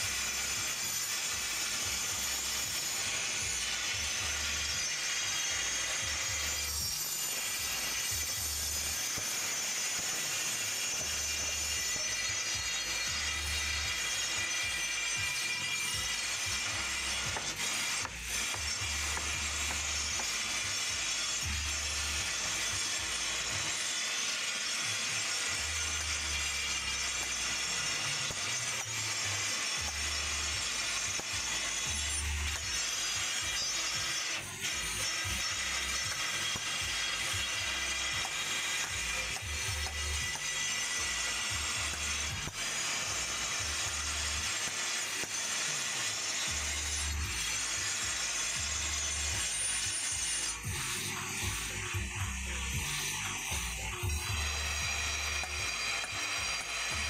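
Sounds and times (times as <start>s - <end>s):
angle grinder cutting stone: 0.0s - 57.0s
hammer striking chisel on stone: 16.6s - 20.7s.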